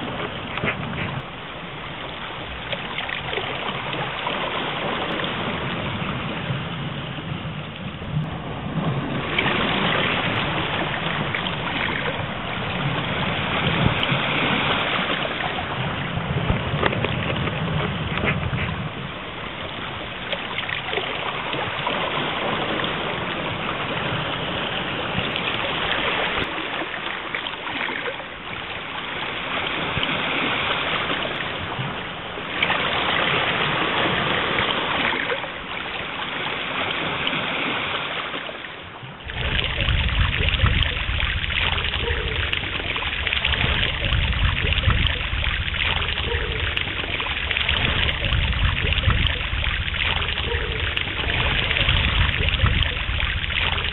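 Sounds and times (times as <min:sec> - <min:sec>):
loud low rumble: 0:39.2 - 0:53.9
steady rushing noise: 0:39.2 - 0:53.9.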